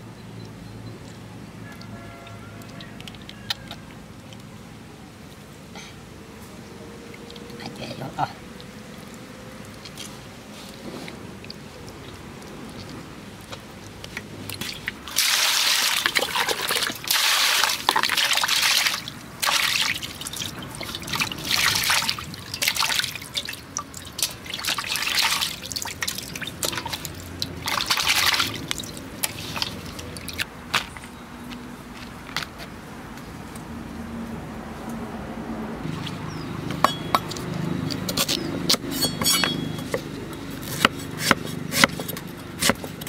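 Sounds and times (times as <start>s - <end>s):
water splashing in metal basin: 14.4s - 30.5s.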